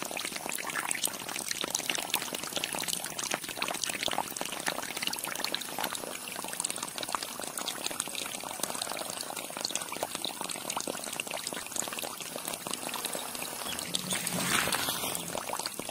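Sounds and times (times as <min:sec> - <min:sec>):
water pouring into pool: 0:00.0 - 0:15.9.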